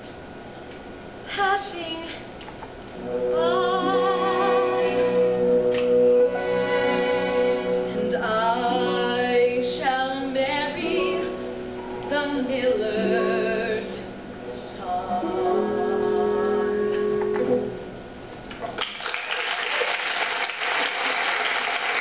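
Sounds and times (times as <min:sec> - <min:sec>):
woman singing with vibrato: 0:01.3 - 0:02.3, 0:03.1 - 0:05.6, 0:07.0 - 0:17.0
orchestral accompaniment: 0:03.0 - 0:09.6.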